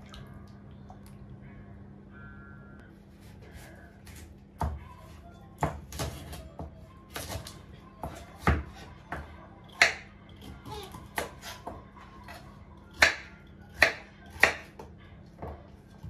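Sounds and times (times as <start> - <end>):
knife chopping on wooden board: 5.6 - 9.2, 9.8 - 14.8.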